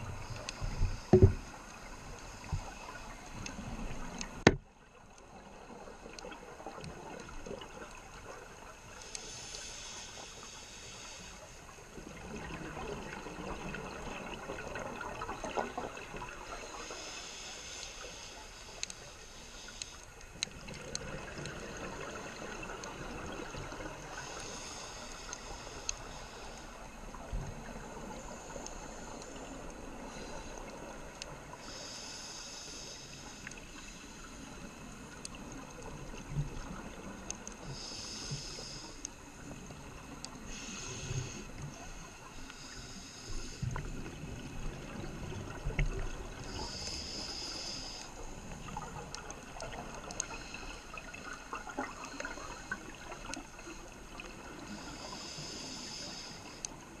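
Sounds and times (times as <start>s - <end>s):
regulator bubbling hiss: 31.5s - 36.0s, 37.6s - 57.0s.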